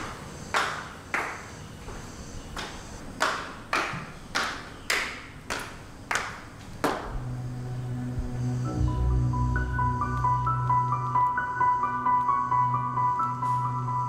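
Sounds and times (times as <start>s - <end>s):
soft music with low tones: 6.9s - 14.0s.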